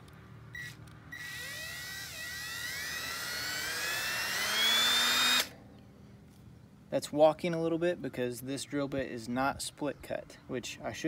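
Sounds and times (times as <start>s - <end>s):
cordless drill whine: 0.6s - 5.5s.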